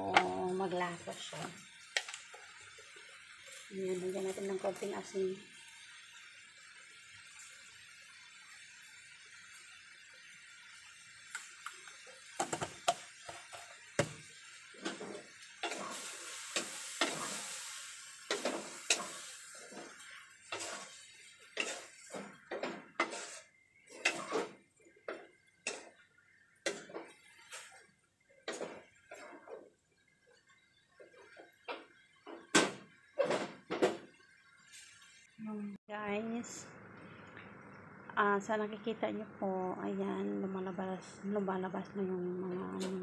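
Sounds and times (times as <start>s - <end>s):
meat frying hiss: 0.0s - 43.0s
wooden spatula scraping metal pot: 21.6s - 24.6s.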